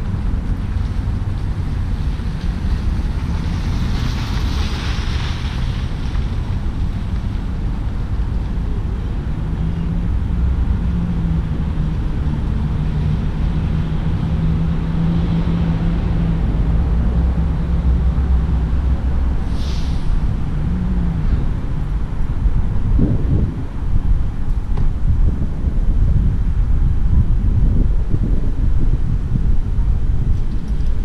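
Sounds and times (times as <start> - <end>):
wind rumbling on microphone: 0.0 - 31.0
high hiss: 19.4 - 20.3.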